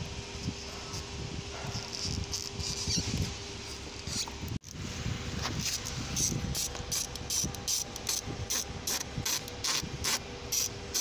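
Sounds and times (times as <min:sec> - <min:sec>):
ratchet wrench clicking: 0:05.6 - 0:11.0.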